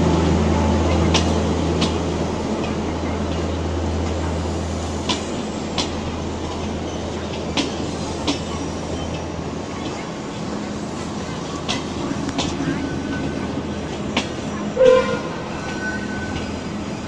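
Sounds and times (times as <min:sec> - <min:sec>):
train wheels clicking over rail joints: 0:00.8 - 0:04.3, 0:05.0 - 0:10.6, 0:11.2 - 0:14.7.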